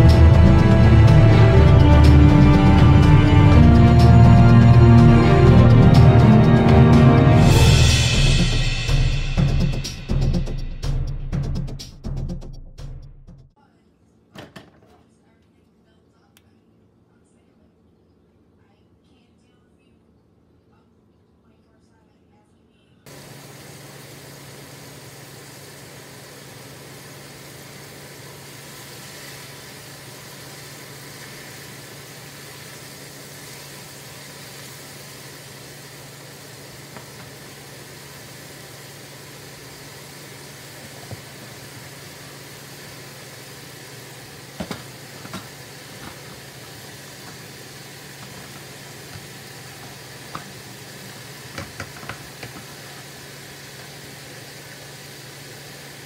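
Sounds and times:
oil sizzling in a pot: 0:00.0 - 0:11.7, 0:23.1 - 0:56.0
utensil knocking against pot: 0:51.5 - 0:52.7.

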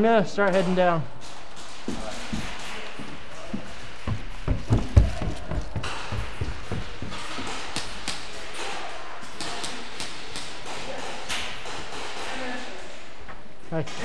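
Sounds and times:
footsteps thudding down stairs: 0:01.9 - 0:07.7
sharp taps and clicks: 0:04.0 - 0:08.3.

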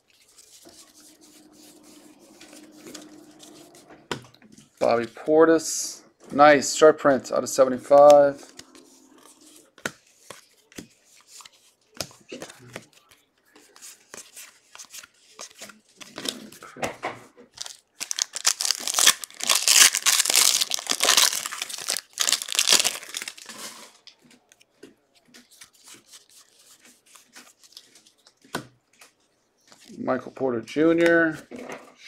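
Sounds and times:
cards clicking and rustling: 0:07.9 - 0:16.6, 0:17.5 - 0:30.0
wrapper tearing and crinkling: 0:17.5 - 0:24.1.

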